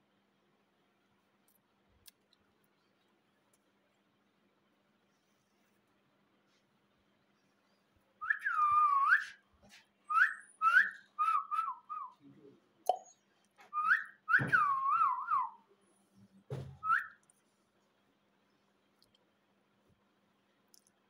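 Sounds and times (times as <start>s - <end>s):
parakeet whistling: 10.1s - 12.2s.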